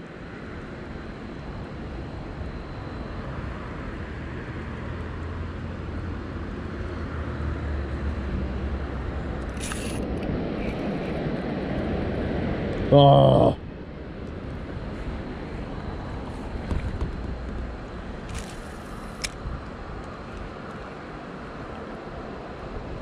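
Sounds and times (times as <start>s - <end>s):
low engine drone: 0.0s - 23.0s
short high hiss: 9.6s - 10.0s.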